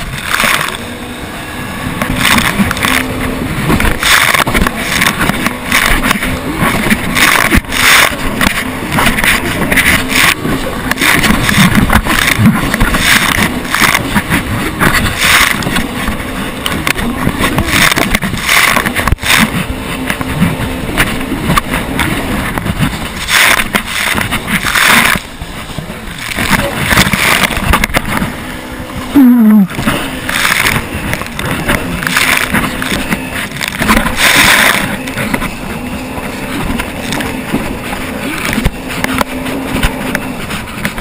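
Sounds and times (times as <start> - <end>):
jet ski engine: 0.0 - 41.0
wind and water spray rushing: 0.0 - 41.0
hull knocking on waves: 2.0 - 29.1.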